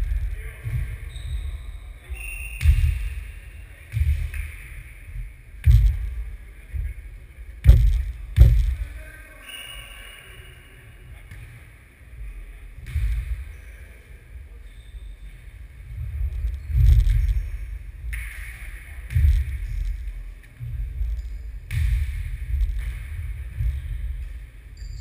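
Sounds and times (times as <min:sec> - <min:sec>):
low rumble: 0:05.1 - 0:09.0.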